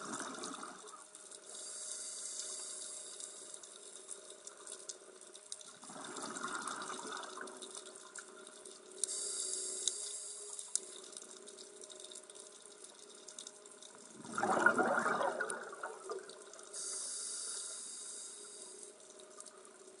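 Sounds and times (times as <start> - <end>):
hiss of regulator inhalation: 1.5 - 3.5, 9.0 - 11.0, 16.7 - 18.9
bubbling regulator exhalations: 14.2 - 16.4.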